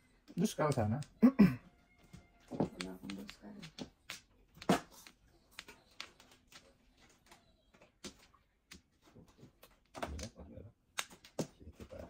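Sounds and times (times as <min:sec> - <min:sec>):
mahjong tiles clicking: 0:00.4 - 0:01.3, 0:02.5 - 0:08.9.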